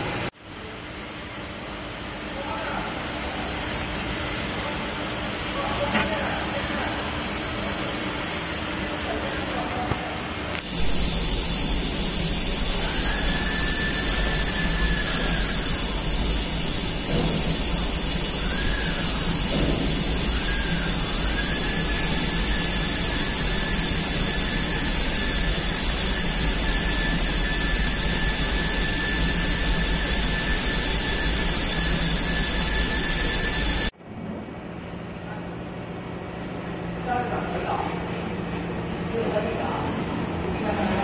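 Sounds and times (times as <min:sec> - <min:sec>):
lathe whining and hissing: 0:10.6 - 0:33.9
low hum: 0:10.6 - 0:34.2.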